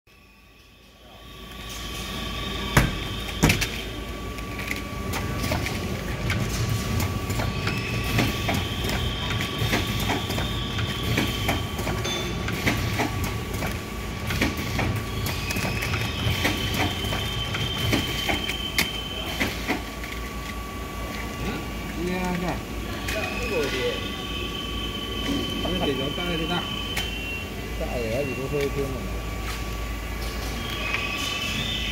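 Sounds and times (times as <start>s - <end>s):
machine steady whine: 0.1s - 31.9s
machine clicking and clatter: 4.6s - 20.2s.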